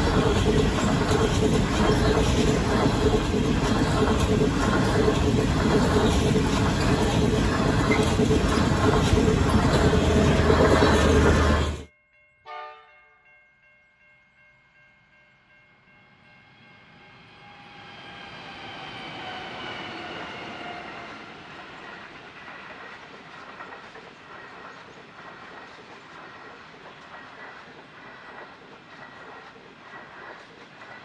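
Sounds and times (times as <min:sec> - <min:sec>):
clickety-clack of train wheels: 0:00.0 - 0:11.9, 0:18.5 - 0:31.0
diesel locomotives passing: 0:00.0 - 0:11.9, 0:15.8 - 0:31.0.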